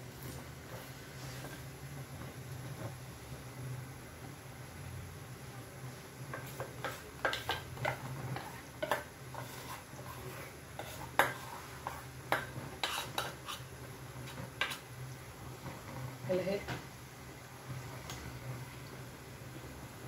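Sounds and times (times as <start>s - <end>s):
metal spoon scraping steel bowl: 6.8s - 12.0s, 12.8s - 13.7s.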